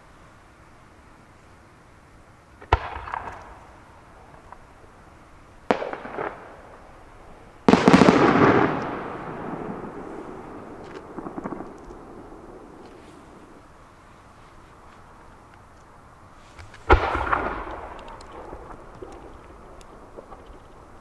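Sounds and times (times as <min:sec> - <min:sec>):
fireworks bangs: 0:02.6 - 0:04.8, 0:05.6 - 0:13.7, 0:16.6 - 0:21.0
fireworks burst: 0:05.6 - 0:13.7, 0:16.6 - 0:21.0.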